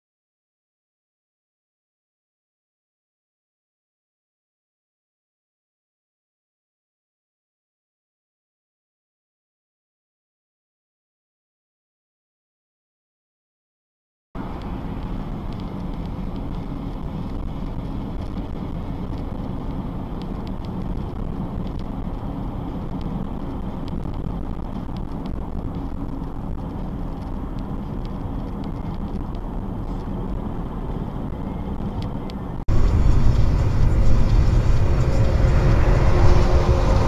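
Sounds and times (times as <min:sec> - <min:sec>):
car driving on wet road: 0:14.4 - 0:37.0.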